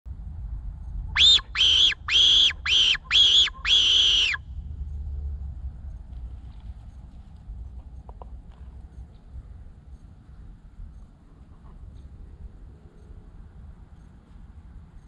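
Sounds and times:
low wind rumble: 0.1 - 15.0
high-pitched predator call cries: 1.2 - 4.5.

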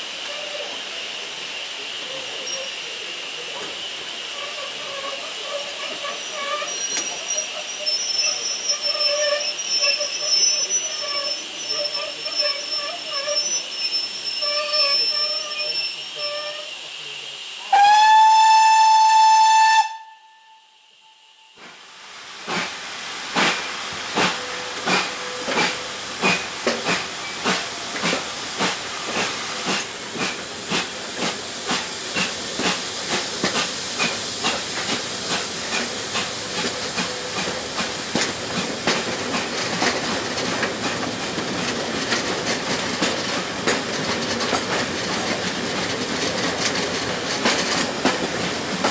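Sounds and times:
steam hiss: 0.0 - 48.9
steam locomotive whistle: 4.4 - 21.6, 24.2 - 26.0.

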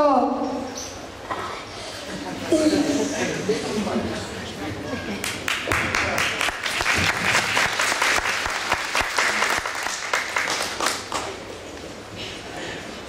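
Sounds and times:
audience applauding: 5.2 - 11.6.

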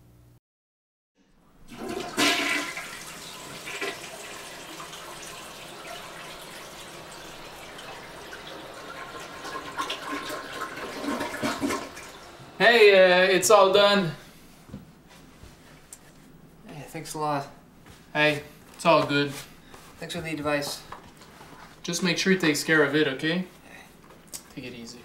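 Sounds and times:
toilet flushing: 1.6 - 12.6.

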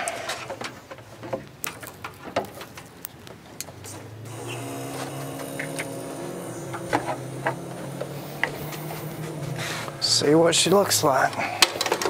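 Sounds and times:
car starter cranking engine: 4.2 - 12.0.

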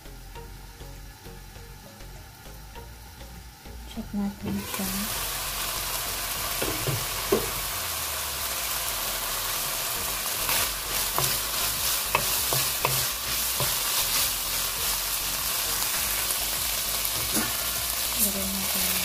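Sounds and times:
meat sizzling in a frying pan: 4.5 - 19.0.

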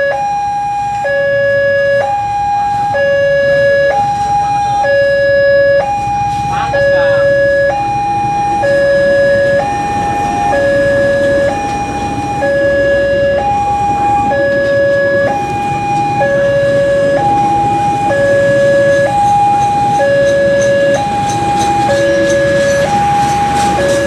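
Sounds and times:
two-tone crossing alarm: 0.0 - 24.0
train rumbling past: 5.9 - 24.0.

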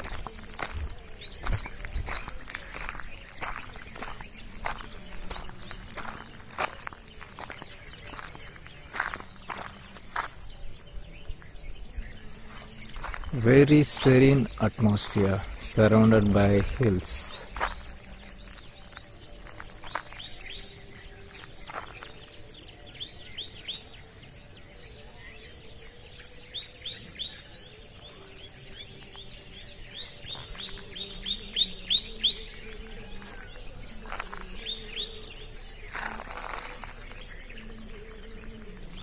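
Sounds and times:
birds chirping: 0.0 - 39.0
insects droning: 0.0 - 39.0.

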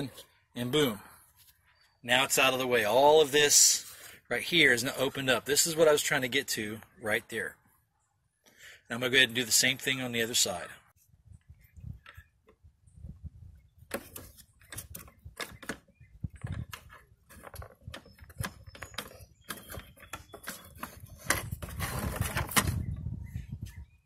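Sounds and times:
scraping rustle: 13.9 - 22.8.

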